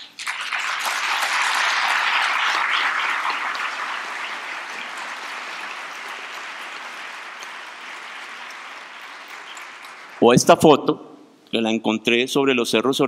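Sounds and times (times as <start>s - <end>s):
large audience applauding: 0.0s - 10.5s.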